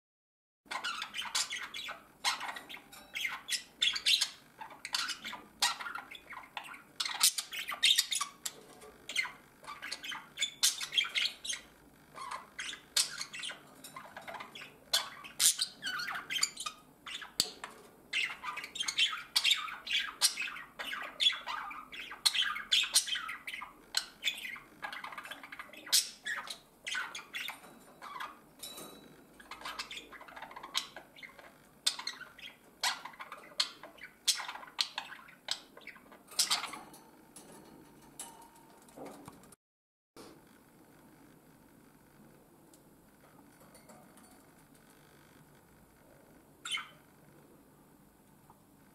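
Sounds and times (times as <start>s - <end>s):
budgerigars chattering: 0.7s - 28.4s, 29.4s - 36.8s, 46.6s - 47.0s.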